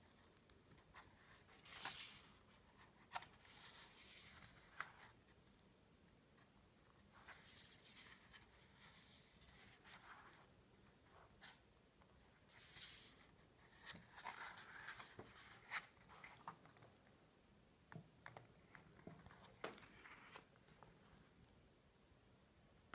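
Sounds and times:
paper pages rustling: 0.1s - 5.2s, 7.2s - 10.5s, 12.5s - 16.8s, 18.6s - 20.8s.

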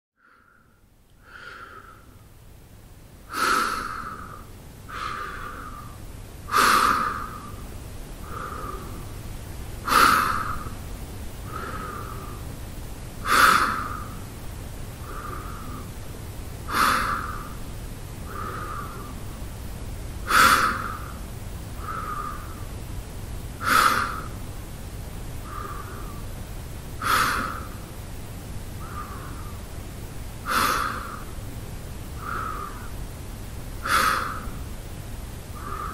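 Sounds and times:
man breathing through mouth: 3.3s - 9.2s, 11.4s - 12.5s, 15.0s - 17.6s, 18.2s - 19.4s, 20.2s - 22.8s, 23.6s - 24.4s, 25.4s - 26.4s, 27.0s - 27.9s, 28.8s - 29.8s, 32.2s - 33.1s, 33.8s - 34.8s, 35.5s - 35.9s.

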